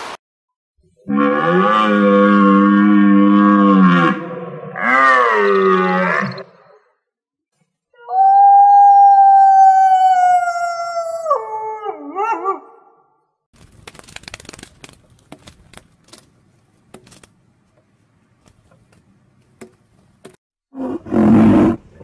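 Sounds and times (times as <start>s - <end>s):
wolf howling: 8.0s - 12.8s.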